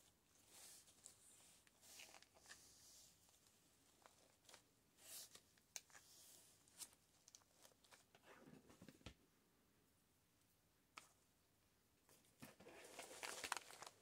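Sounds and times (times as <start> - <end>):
faint rustling of ribbon: 0.0 - 8.5, 12.1 - 14.0.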